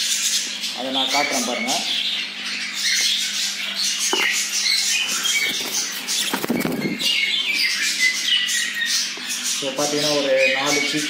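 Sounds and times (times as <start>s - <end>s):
budgerigars chattering and chirping: 0.0s - 11.0s
wings flapping: 5.0s - 7.2s.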